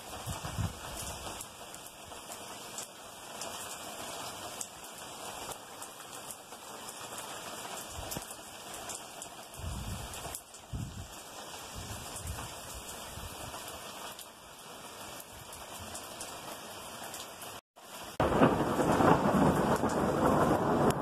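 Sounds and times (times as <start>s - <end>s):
heavy rain: 0.0s - 21.0s
thunder rumble: 18.2s - 21.0s.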